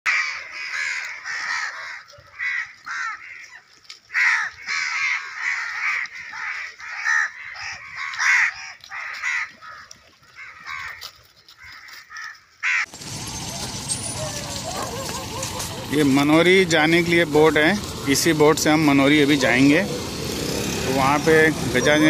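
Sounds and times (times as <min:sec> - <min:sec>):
crows cawing: 0:00.1 - 0:13.2.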